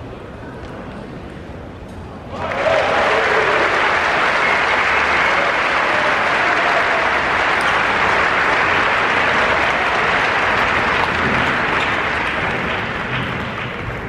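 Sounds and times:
crowd applauding: 0:02.3 - 0:14.0.

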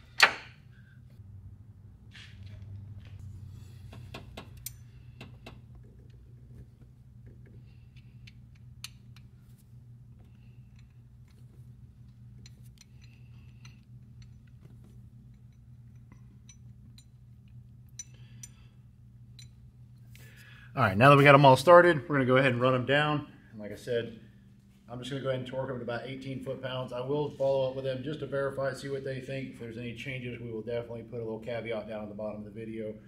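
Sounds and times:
steady low hum: 0:00.0 - 0:33.0
bolts clicking and tapping metal: 0:03.9 - 0:18.6.

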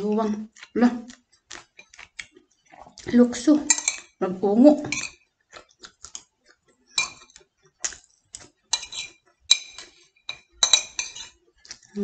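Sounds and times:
metal spoon scraping ceramic plate: 0:03.7 - 0:04.1, 0:08.7 - 0:11.4.

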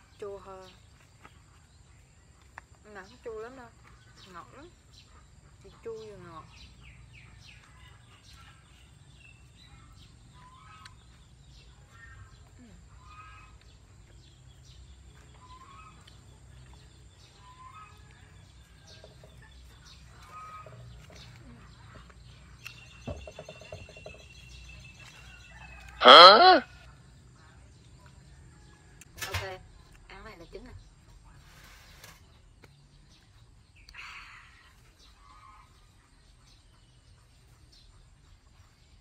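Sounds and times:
small birds calling: 0:00.0 - 0:39.0
chickens clucking: 0:15.1 - 0:26.4.

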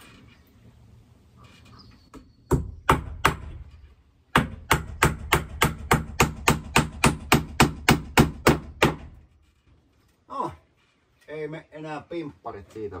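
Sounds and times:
hammer nailing wood: 0:02.5 - 0:03.7, 0:04.3 - 0:09.2.

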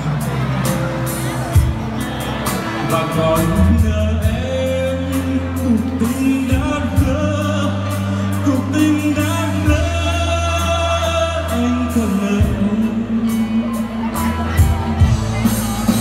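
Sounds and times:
live band playing pop ballad: 0:00.0 - 0:16.0
long held bass notes: 0:00.0 - 0:16.0
person singing: 0:02.0 - 0:16.0.

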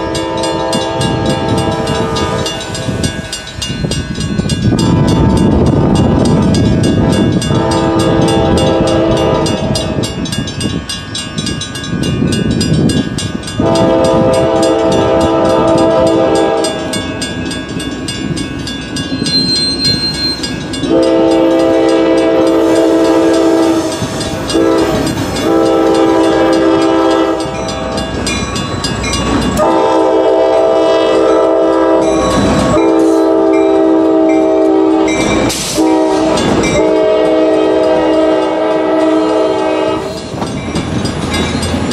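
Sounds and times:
locomotive air horn blasts: 0:00.0 - 0:03.0, 0:04.8 - 0:05.9, 0:07.0 - 0:10.2, 0:13.6 - 0:17.1, 0:20.9 - 0:28.1, 0:29.6 - 0:40.3
crossing bells clanging: 0:00.0 - 0:41.9
train wheels clacking on rails: 0:00.0 - 0:41.9.

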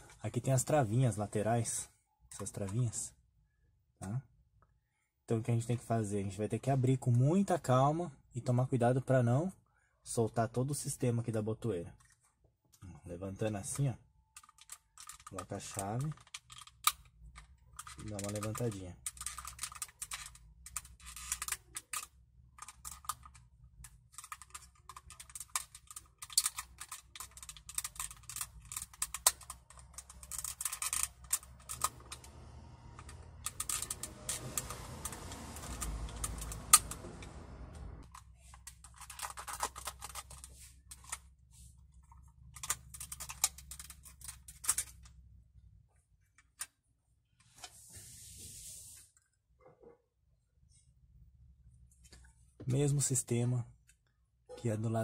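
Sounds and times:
plastic clicks and scrapes: 0:13.6 - 0:41.3, 0:41.9 - 0:45.2.

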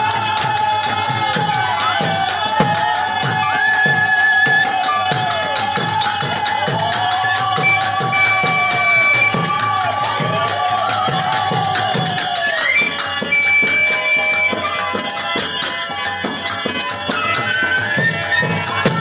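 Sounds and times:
drum beating steady rhythm: 0:00.0 - 0:19.0
jingling hand cymbals: 0:00.0 - 0:19.0
held melodic note: 0:00.8 - 0:15.4.

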